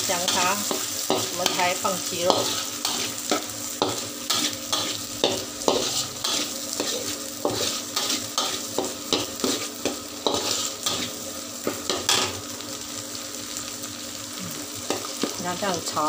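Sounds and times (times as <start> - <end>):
frying oil sizzling: 0.0 - 16.0
metal spoon scraping in a wok: 0.2 - 11.2.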